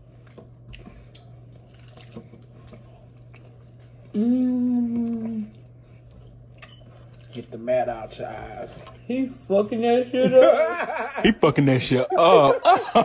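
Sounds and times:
chewing and mouth clicks: 0.0 - 4.1, 4.8 - 7.5.

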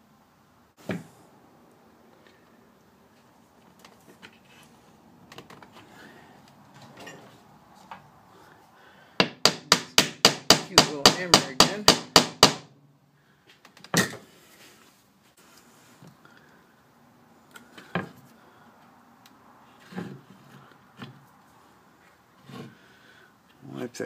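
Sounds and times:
hammer tapping wooden peg: 9.2 - 12.6.

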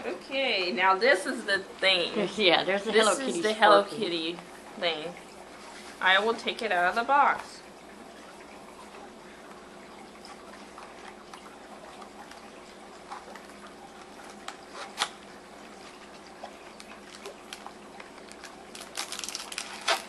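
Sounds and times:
steady background hum: 0.0 - 20.0
cardboard flaps scraping and clicking: 19.3 - 20.0.

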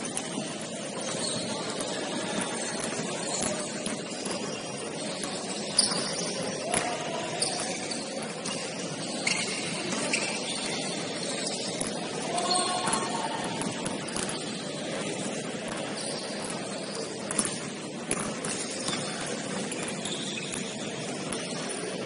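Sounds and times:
basketball bouncing: 0.0 - 22.0
echoing background voices: 6.4 - 20.0.

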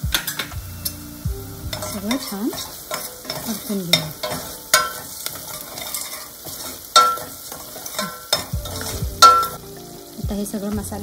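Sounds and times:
spices sizzling in hot oil: 0.0 - 11.0
metal spoon clanking on pot: 0.1 - 1.0, 1.7 - 9.6.

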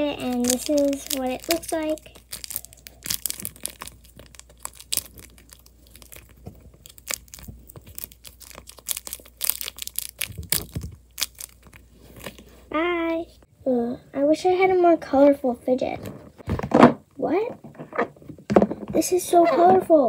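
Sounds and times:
plastic bubbles crinkling and clicking: 0.0 - 12.4.

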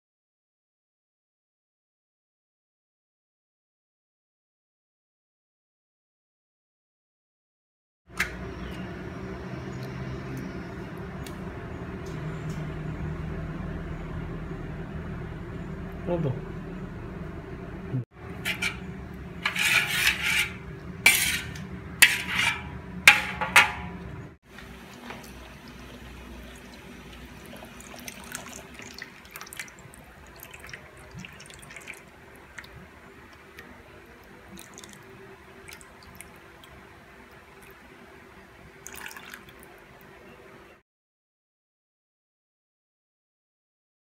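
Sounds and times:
low hum: 8.2 - 24.4
spoon scraping metal wok: 18.2 - 24.0
liquid pouring: 24.6 - 32.8, 34.2 - 36.8, 38.8 - 39.8.

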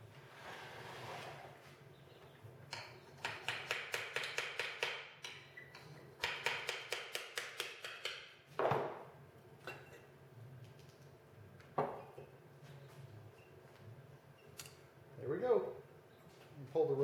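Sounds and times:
hammer tapping on metal: 2.7 - 8.2.

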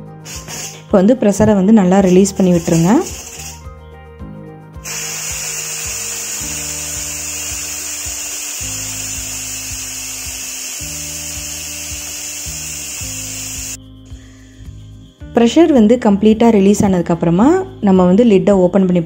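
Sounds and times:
steam hissing from pressure cooker: 0.3 - 0.9, 2.1 - 3.6, 4.8 - 13.8.

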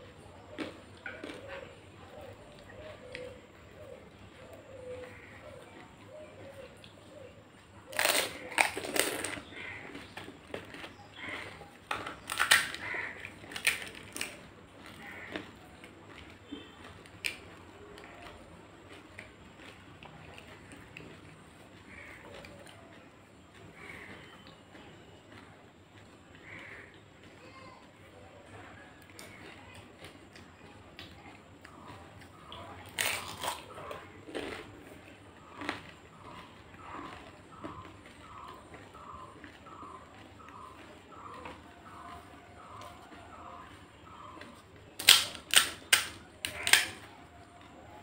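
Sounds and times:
quiet chewing: 0.0 - 48.0
crisp shells crackling: 7.9 - 15.6, 32.9 - 34.9, 45.0 - 47.0.

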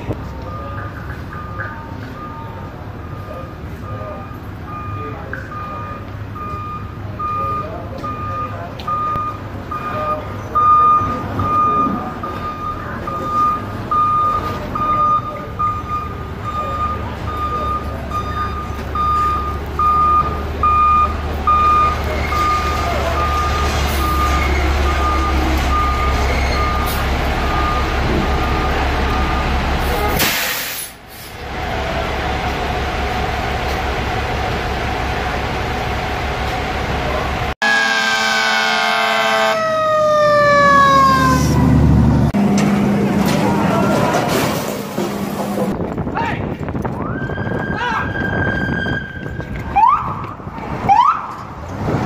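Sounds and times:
diesel engine rumble: 0.0 - 52.0
reversing alarm beeping: 0.2 - 30.1
air brakes hissing: 29.8 - 31.5.

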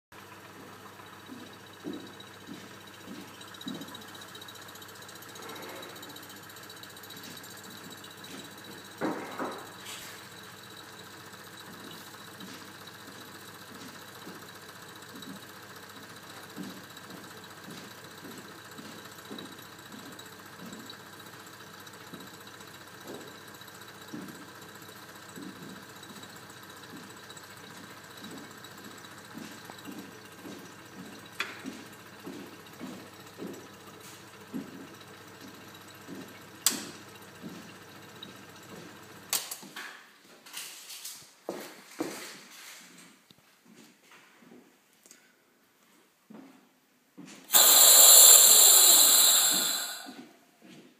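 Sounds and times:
vacuum pump running: 0.2 - 36.8, 47.5 - 50.2.

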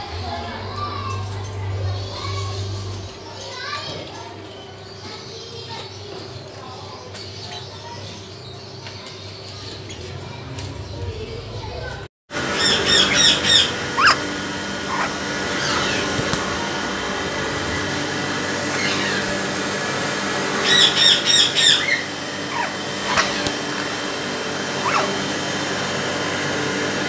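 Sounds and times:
mechanical hum: 0.0 - 27.0
parrot squawking: 12.5 - 16.3, 18.6 - 19.5, 20.5 - 24.0, 24.6 - 25.4.

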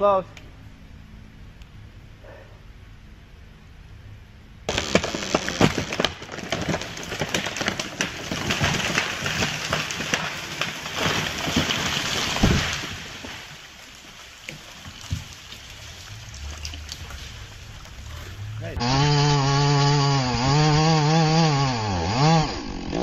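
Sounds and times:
debris knocks: 4.7 - 18.6
wood cracking and snapping: 4.7 - 18.7
branches crashing: 4.7 - 20.9.

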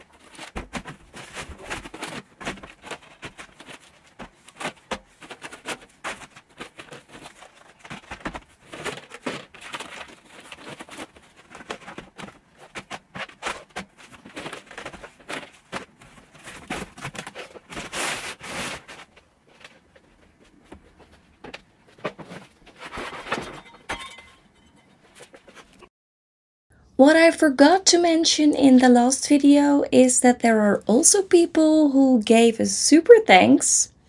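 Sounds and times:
plastic cases clacking together: 0.0 - 24.4.

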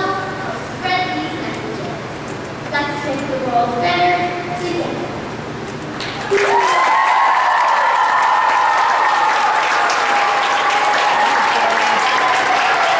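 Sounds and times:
children applauding and cheering: 6.0 - 12.9.

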